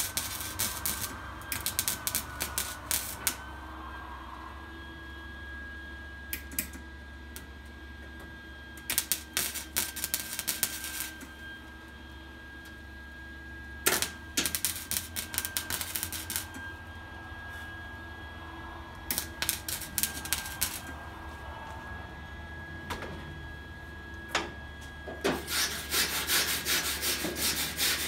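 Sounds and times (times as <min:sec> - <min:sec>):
welder arc crackling: 0:00.0 - 0:03.6, 0:08.8 - 0:11.3, 0:13.8 - 0:16.7, 0:18.9 - 0:21.8.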